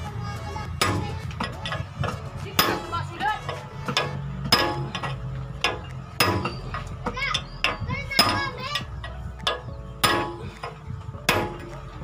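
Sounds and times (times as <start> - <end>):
hammer striking steel rod: 0.8 - 1.8, 2.6 - 2.9, 3.9 - 8.5, 9.4 - 11.7
children's voices: 7.0 - 9.0.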